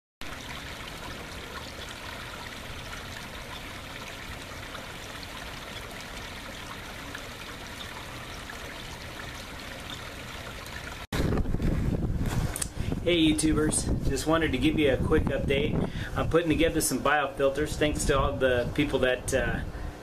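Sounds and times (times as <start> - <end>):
water trickling over rocks: 0.2 - 11.1.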